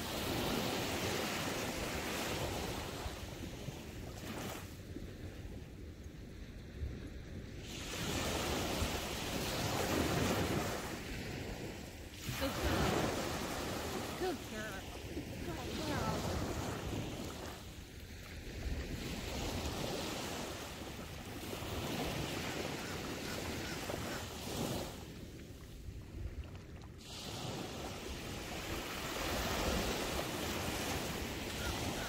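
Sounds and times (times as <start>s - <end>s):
wind rumble on microphone: 0.0s - 32.0s
ocean surf breaking: 7.6s - 17.6s.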